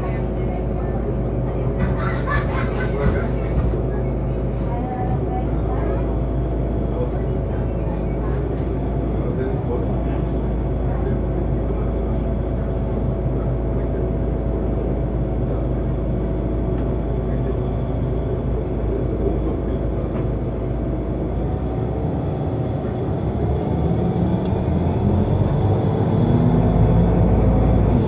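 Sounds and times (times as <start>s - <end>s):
bus engine idling: 0.0s - 28.0s.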